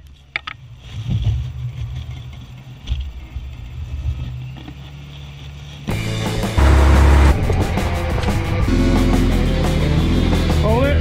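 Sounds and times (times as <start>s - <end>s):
engine low rumble: 0.0s - 11.0s
music: 5.9s - 11.0s.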